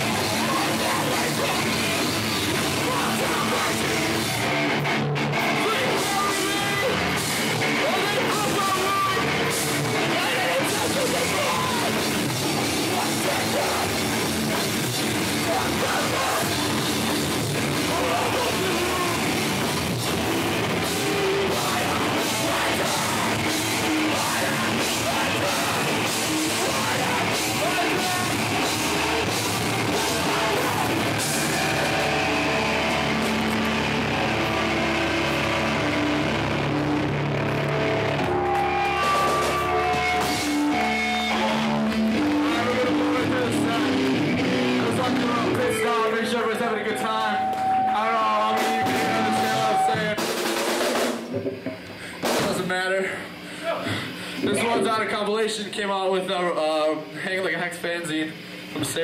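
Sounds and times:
bass guitar: 0.0s - 50.4s, 51.2s - 52.6s
distorted guitars: 0.0s - 59.0s
drums with crashing cymbals: 5.5s - 36.8s, 37.4s - 42.3s, 48.4s - 52.8s.

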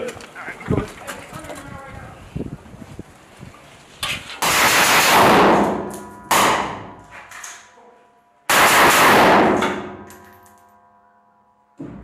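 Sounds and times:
loud echoing bangs: 4.4s - 7.0s, 8.5s - 10.1s.

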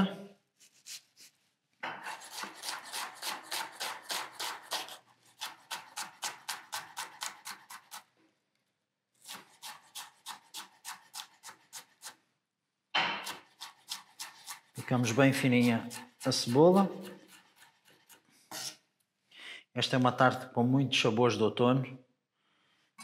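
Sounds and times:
knife chopping on wooden board: 1.8s - 8.1s, 9.2s - 11.9s, 13.0s - 18.6s.

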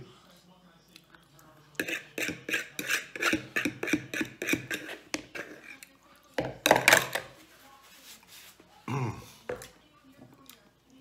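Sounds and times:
fork scraping a bowl: 1.7s - 7.4s
paper napkin rustling: 7.4s - 8.7s.

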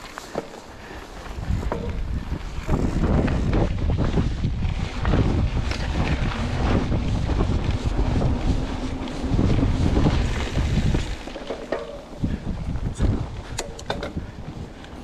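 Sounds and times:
bike knocks and rattles: 0.0s - 0.7s, 1.4s - 14.6s
tyre noise on dirt: 0.0s - 15.0s
wind buffeting microphone: 1.1s - 15.0s.

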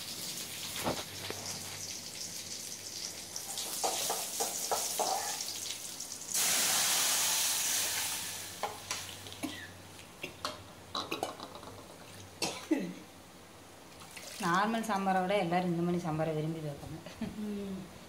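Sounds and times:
spices sizzling in hot oil: 0.0s - 9.4s
loud sizzle of poured lentils: 0.0s - 10.0s.

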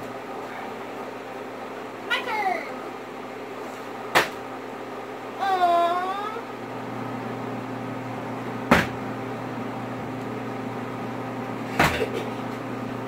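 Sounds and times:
low appliance hum: 0.0s - 13.0s
plastic bottle landing on wooden table: 8.7s - 9.0s.

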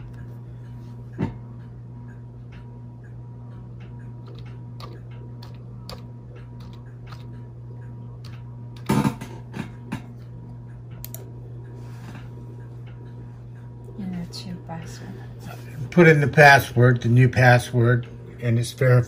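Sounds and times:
steady low hum: 0.0s - 19.0s
laptop keys clicking: 4.2s - 7.4s.

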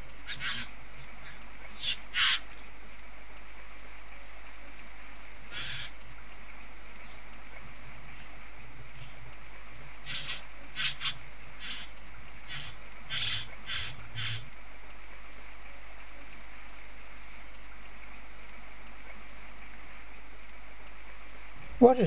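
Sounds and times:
background hiss: 0.0s - 22.0s
bird giving harsh calls: 0.2s - 2.5s, 5.5s - 6.0s, 10.0s - 14.5s.

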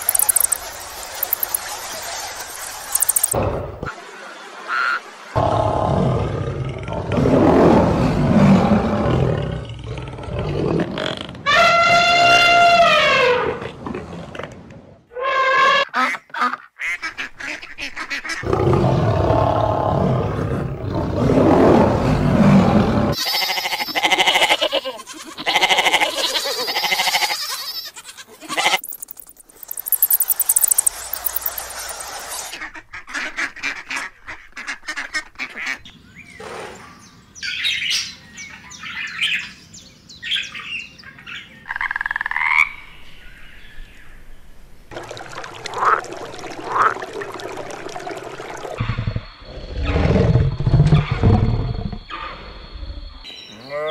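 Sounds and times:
animal calls: 0.0s - 0.6s, 23.2s - 32.6s
bird-like chirps: 0.0s - 3.4s, 28.6s - 32.5s.

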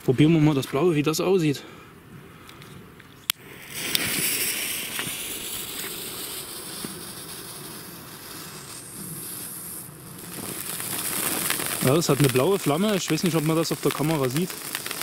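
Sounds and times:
faint crackles: 2.4s - 15.0s
firework fountain hissing: 3.4s - 15.0s.

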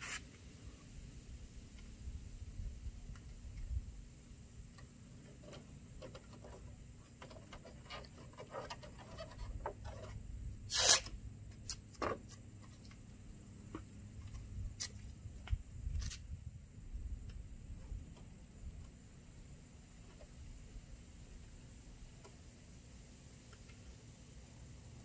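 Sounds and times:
tape ripping from roll: 0.0s - 0.2s, 10.7s - 11.8s.

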